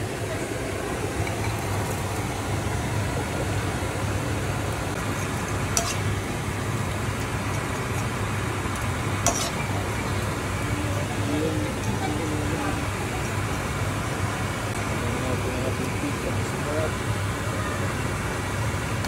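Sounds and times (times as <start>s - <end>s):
steady hum and hiss: 0.0s - 19.0s
stirring food in a wok: 1.0s - 15.0s.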